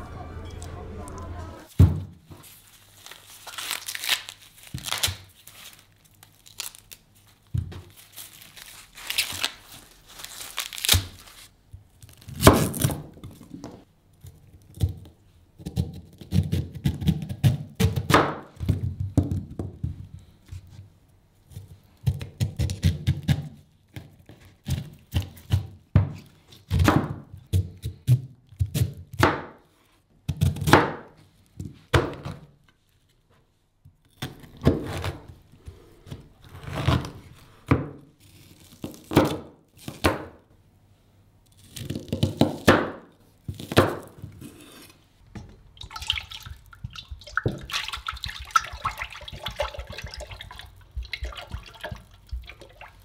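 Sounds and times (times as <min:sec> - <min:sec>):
corn husks tearing and crackling: 0:02.6 - 0:13.1, 0:38.2 - 0:40.0.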